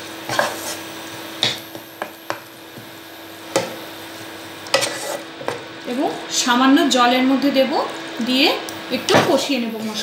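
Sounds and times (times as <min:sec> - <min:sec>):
spatula scraping a pan: 0:00.2 - 0:00.9, 0:04.6 - 0:05.6.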